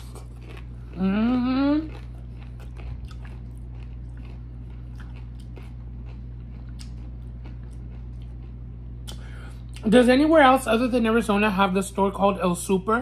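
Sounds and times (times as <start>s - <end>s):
crunchy chewing: 0.0s - 9.8s
steady low hum: 0.0s - 13.0s.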